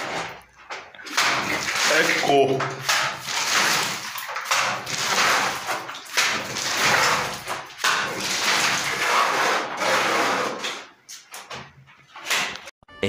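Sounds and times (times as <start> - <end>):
trowel scraping wet mortar: 1.0 - 10.9.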